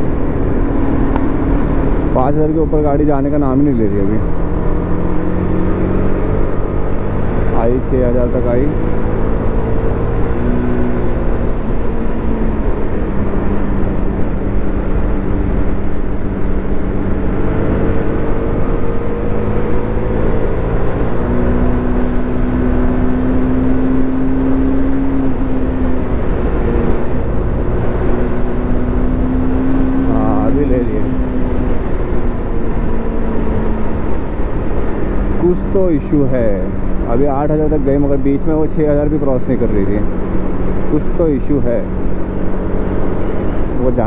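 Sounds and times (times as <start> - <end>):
rider talking: 2.1 - 4.3, 7.5 - 8.9, 30.0 - 31.2, 35.3 - 40.1, 40.8 - 41.9, 43.7 - 44.0.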